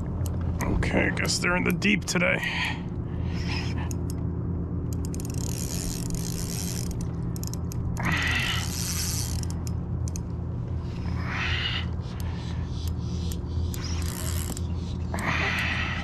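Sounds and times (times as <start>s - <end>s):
fishing reel gears ticking: 4.8s - 10.3s, 10.9s - 16.0s.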